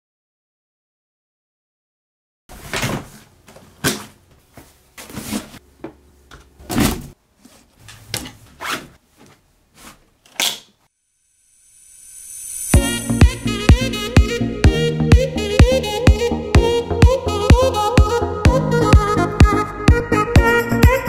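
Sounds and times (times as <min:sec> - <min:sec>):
plastic backpack knocks and rustles: 0:02.5 - 0:04.2.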